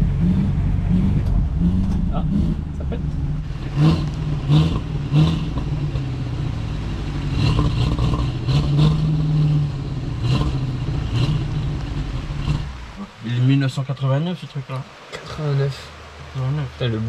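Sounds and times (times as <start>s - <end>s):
engine revving: 0.0s - 13.2s.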